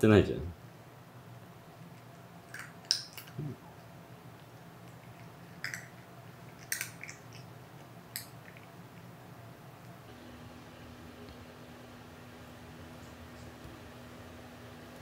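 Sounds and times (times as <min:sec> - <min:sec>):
cat chewing crunchy food: 0:01.9 - 0:09.2.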